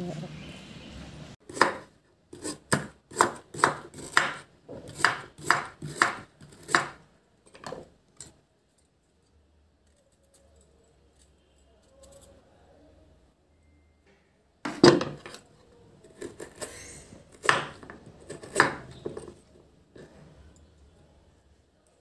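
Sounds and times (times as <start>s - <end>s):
knife chopping on wooden board: 1.5s - 7.0s, 17.4s - 19.4s.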